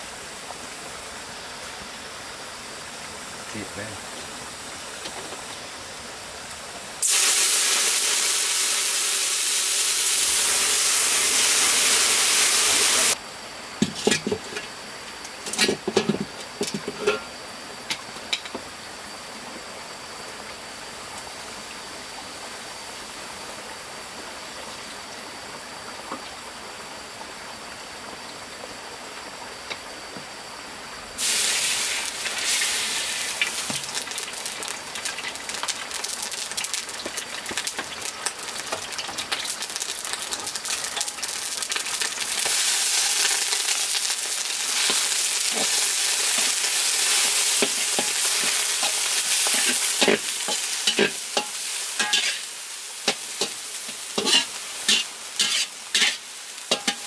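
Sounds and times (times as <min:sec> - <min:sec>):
loud steady hiss: 0:00.0 - 0:57.0
oil sizzling in wok: 0:00.0 - 0:57.0
wood fire crackling: 0:31.2 - 0:57.0.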